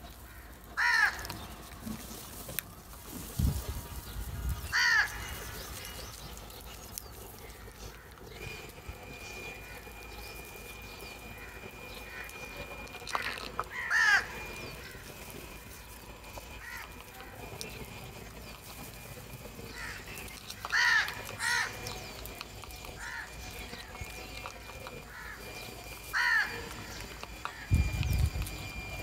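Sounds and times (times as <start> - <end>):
crows cawing: 0.2 - 1.5, 4.7 - 6.2, 7.4 - 8.3, 11.1 - 15.2, 16.5 - 17.6, 19.6 - 22.0, 22.7 - 24.3, 25.0 - 27.7.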